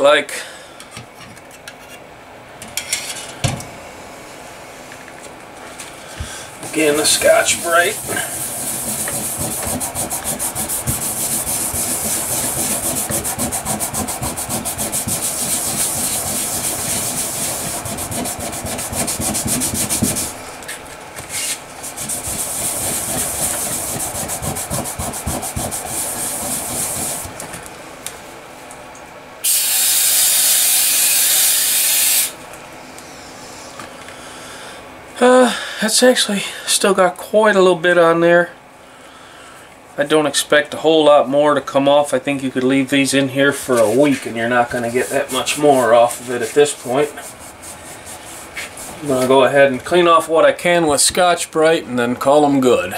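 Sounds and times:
aerosol can spraying: 6.7 - 20.4, 21.9 - 27.3, 29.4 - 32.4
scouring pad scrubbing metal: 6.7 - 20.4, 21.8 - 27.3, 43.8 - 49.2.

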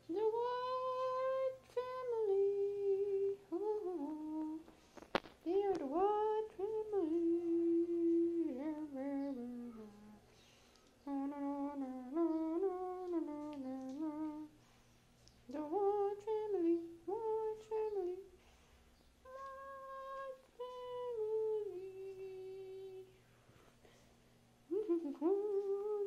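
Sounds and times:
person humming: 0.1 - 4.6, 5.5 - 10.3, 11.0 - 14.6, 19.2 - 23.1, 24.7 - 26.0.

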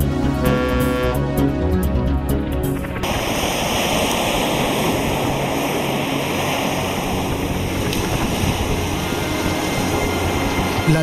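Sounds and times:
background music: 0.0 - 3.3, 6.0 - 11.0
seawater rushing along boat: 0.0 - 11.0.

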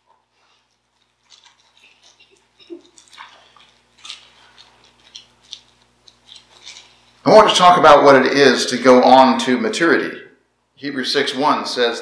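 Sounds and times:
pages rustling: 0.0 - 7.2.

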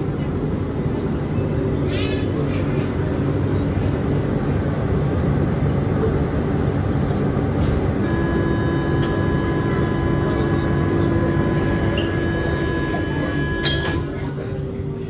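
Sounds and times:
train equipment hum: 0.0 - 15.0
metro door warning tone: 7.4 - 14.7
train doors sliding shut: 7.5 - 14.2.

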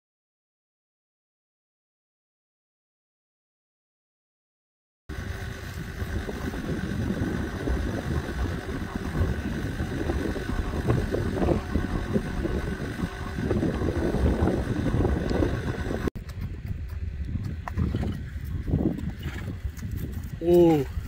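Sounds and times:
wind buffeting microphone: 5.1 - 21.0.

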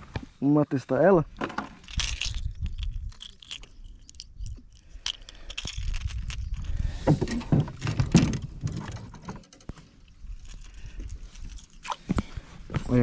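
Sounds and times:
metal clinks of fishing lure hooks: 1.8 - 6.7
wind rumble on microphone: 1.8 - 9.3.

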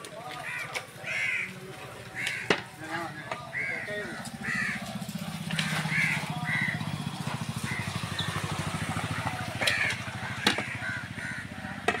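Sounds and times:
bird cawing: 0.4 - 12.0
low engine-like throb: 4.4 - 8.1.

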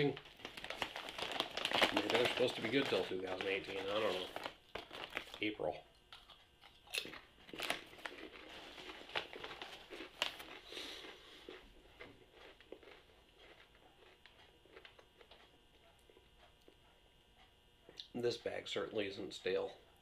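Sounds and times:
chip bag crinkling: 0.0 - 15.4
potato chips crunching: 0.0 - 15.4.

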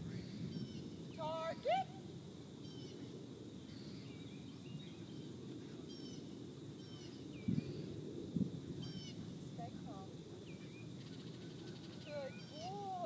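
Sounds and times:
high bird chirps: 11.8 - 12.9.

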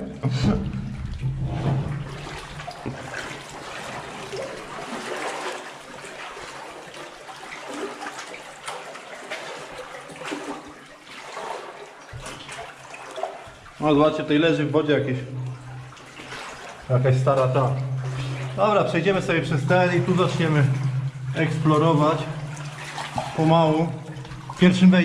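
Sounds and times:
water sloshing and splashing: 0.0 - 25.0.

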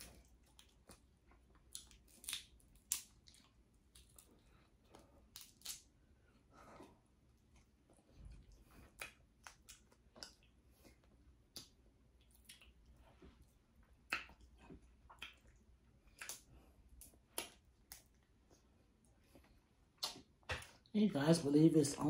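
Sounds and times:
soft chewing: 0.0 - 21.0
crab shell cracking: 1.7 - 4.2, 5.3 - 5.9.

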